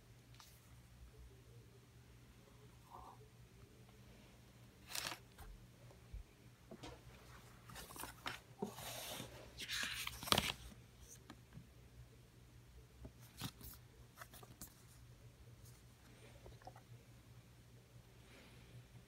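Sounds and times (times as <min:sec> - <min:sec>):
paper and card rustling: 0:04.8 - 0:05.5, 0:07.6 - 0:11.3, 0:13.2 - 0:15.0.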